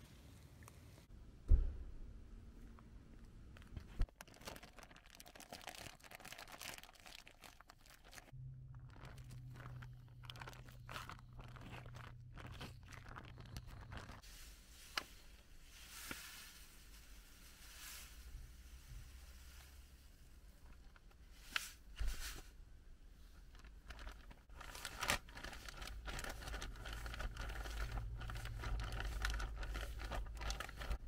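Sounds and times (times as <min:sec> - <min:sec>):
plastic bags crinkling: 0:03.6 - 0:14.4, 0:23.4 - 0:31.0
low steady hum: 0:08.3 - 0:21.0.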